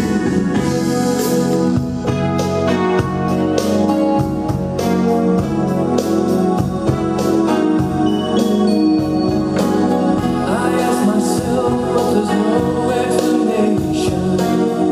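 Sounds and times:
romantic song over speakers: 0.0 - 14.9.

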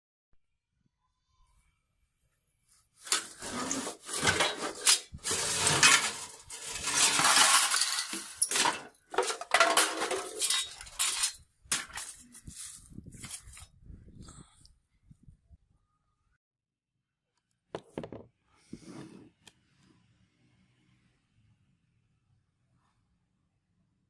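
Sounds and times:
scrap metal clanking: 3.0 - 12.3.

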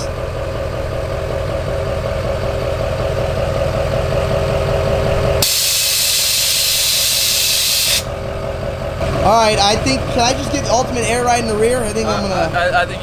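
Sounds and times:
diesel engine idling: 0.0 - 13.0
air suspension hiss: 5.4 - 8.1.

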